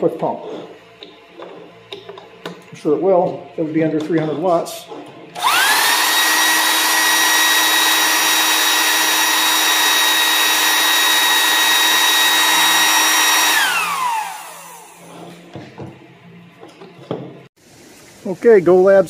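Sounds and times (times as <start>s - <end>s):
electric air pump running: 5.3s - 15.6s.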